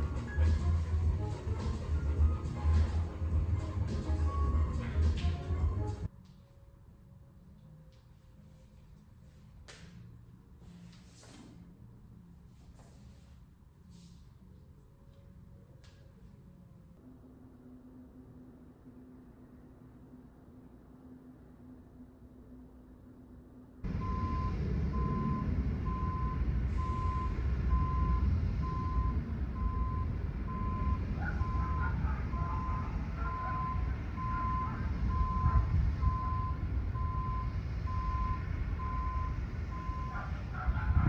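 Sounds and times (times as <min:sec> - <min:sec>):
traffic rumble: 0:00.0 - 0:06.3, 0:23.8 - 0:41.0
reversing alarm beeping: 0:23.9 - 0:40.6.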